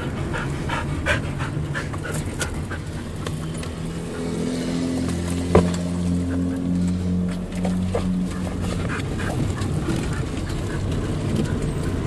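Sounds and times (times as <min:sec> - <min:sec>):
dog panting: 0:00.0 - 0:04.6, 0:08.3 - 0:12.0
car engine rumble and road noise: 0:00.0 - 0:12.0.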